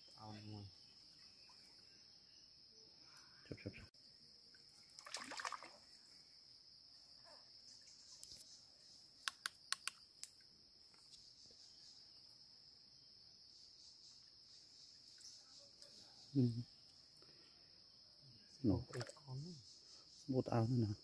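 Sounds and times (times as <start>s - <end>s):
crickets chirring: 0.0s - 21.0s
water splash: 5.0s - 5.9s
sharp clicks: 9.2s - 10.4s.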